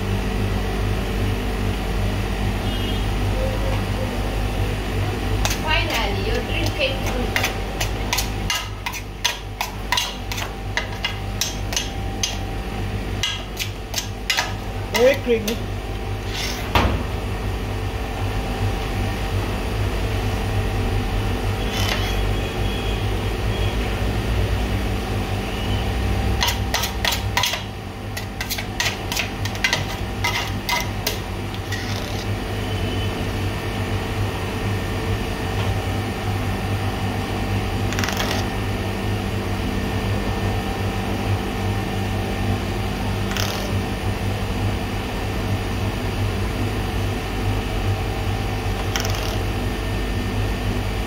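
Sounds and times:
batch freezer humming: 0:00.0 - 0:51.0.

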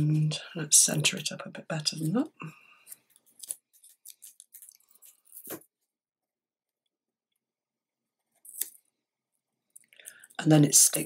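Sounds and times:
sharp paper crackle: 0:03.2 - 0:05.6.

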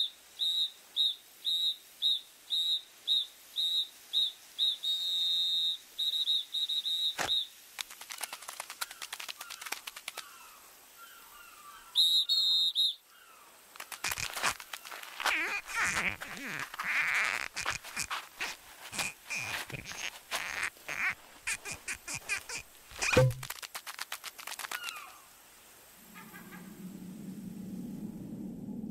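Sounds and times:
quick tiny clicks: 0:07.2 - 0:10.3, 0:13.8 - 0:25.1
sharp knock: 0:23.0 - 0:23.4.

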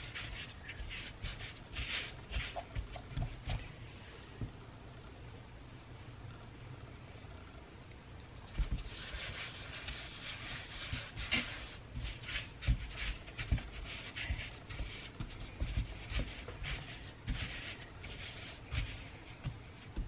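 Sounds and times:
hands rubbing bread dough: 0:00.0 - 0:03.8, 0:08.4 - 0:20.0.

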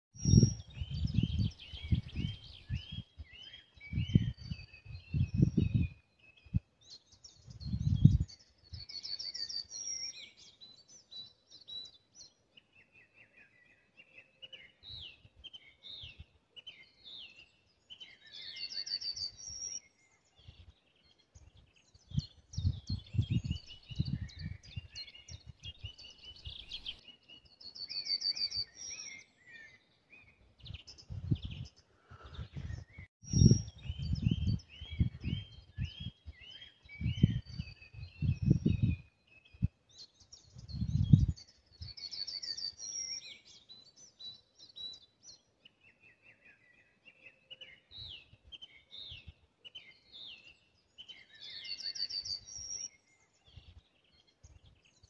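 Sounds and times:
songbirds singing: 0:00.1 - 0:55.0
low microphone rumble: 0:31.0 - 0:36.2.

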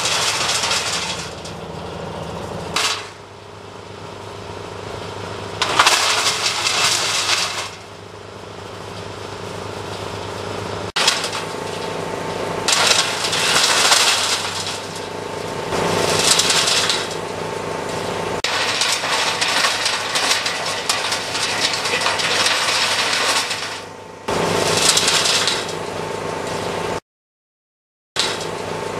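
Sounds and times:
wood chipper engine droning: 0:00.0 - 0:27.0, 0:28.2 - 0:28.9
branches grinding through chipper: 0:04.5 - 0:26.8.

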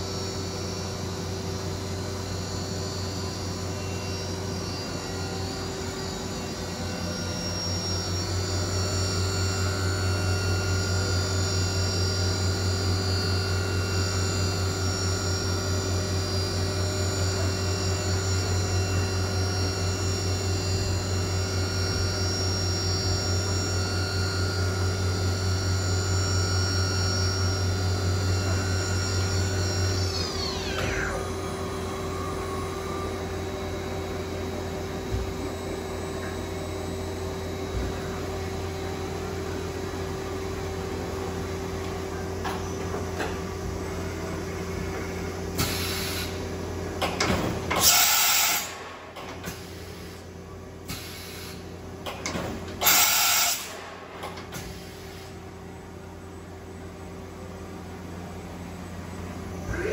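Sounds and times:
machine humming: 0:00.0 - 0:47.2
spindle winding down whine: 0:01.9 - 0:39.1.

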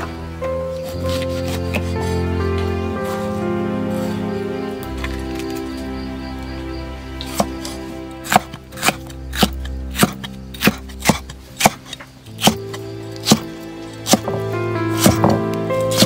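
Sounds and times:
cleaver chopping on wooden block: 0:07.3 - 0:12.6, 0:13.2 - 0:14.3, 0:15.0 - 0:16.0.

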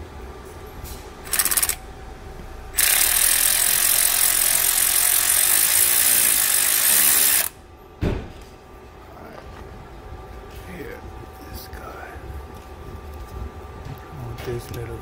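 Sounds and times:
electric ratchet running: 0:01.2 - 0:01.8, 0:02.7 - 0:07.6.

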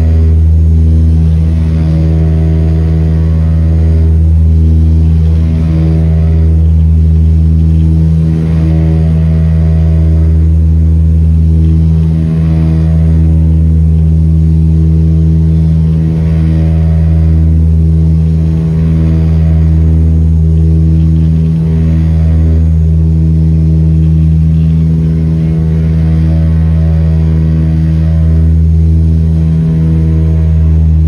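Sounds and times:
propeller engine low drone: 0:00.0 - 0:31.0.

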